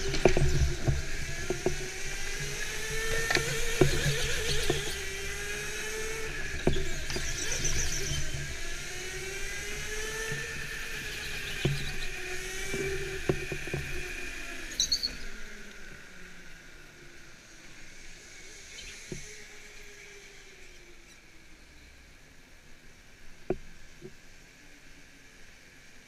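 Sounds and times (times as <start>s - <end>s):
kart knocks and rattles: 0.0s - 14.7s
go-kart motor whining: 0.0s - 21.3s.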